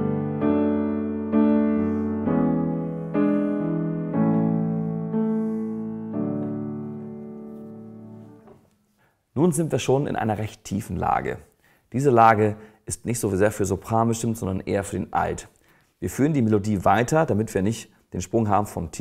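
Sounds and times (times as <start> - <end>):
piano chords: 0.0 - 8.8.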